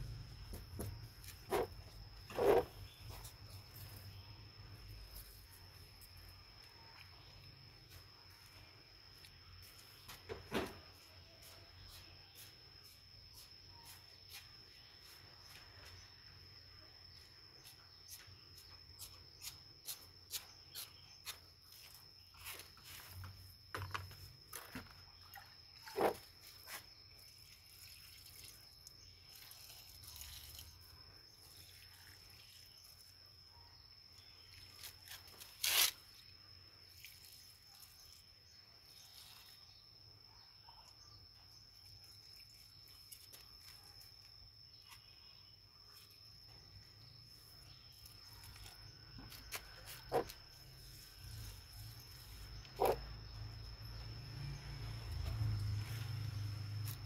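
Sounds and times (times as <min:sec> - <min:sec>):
cricket trilling: 0:00.0 - 0:57.0
water pouring over plants: 0:27.3 - 0:33.0.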